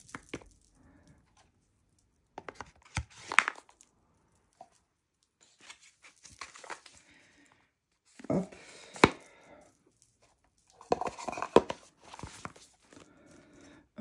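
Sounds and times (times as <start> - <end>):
cardboard box and cards handled: 2.3 - 3.9, 5.4 - 7.1, 10.1 - 13.1.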